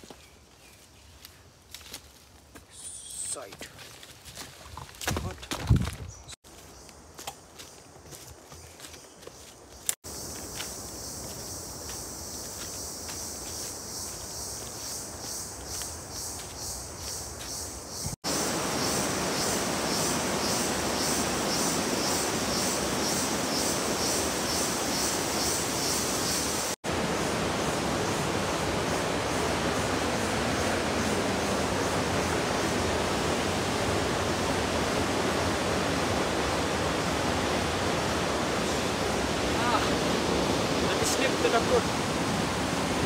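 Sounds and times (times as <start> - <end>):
pulsing insect chirr: 6.7 - 43.0
waterfall roaring: 18.3 - 43.0.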